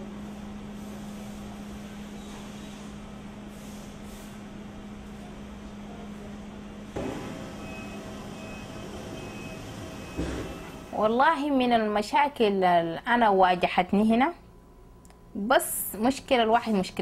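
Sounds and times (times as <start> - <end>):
laundry machinery running: 4.5 - 11.4.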